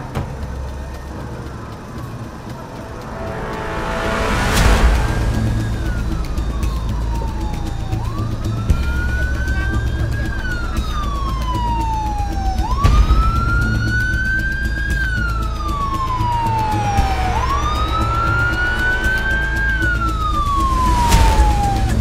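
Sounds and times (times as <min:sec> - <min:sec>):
low rumble: 0:00.0 - 0:22.0
emergency siren wailing: 0:01.7 - 0:22.0.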